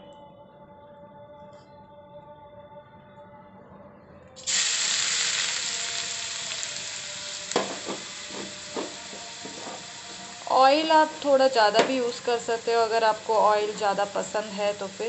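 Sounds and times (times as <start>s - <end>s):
onions sizzling in hot oil: 4.4s - 15.0s
knocks against pan: 7.5s - 9.8s.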